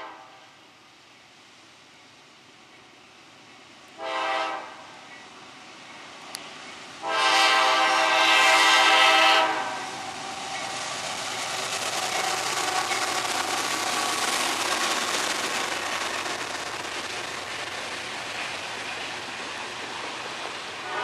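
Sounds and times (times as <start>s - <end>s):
freight train rumbling past: 0.0s - 21.0s
locomotive air horn: 4.0s - 4.8s, 7.0s - 9.9s.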